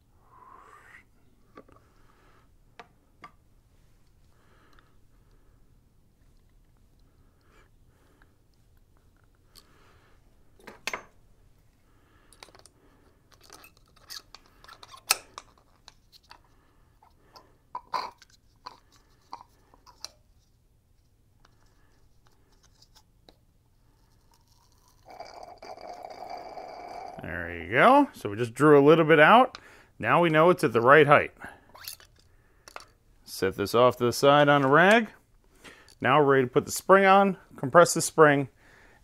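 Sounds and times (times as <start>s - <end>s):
small clicks and knocks: 12.3s - 12.7s.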